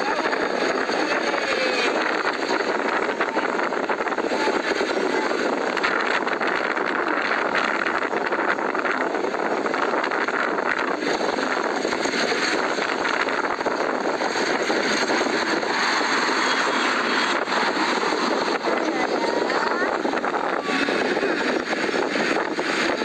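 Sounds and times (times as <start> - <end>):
vehicle engine and road noise: 0.0 - 23.0.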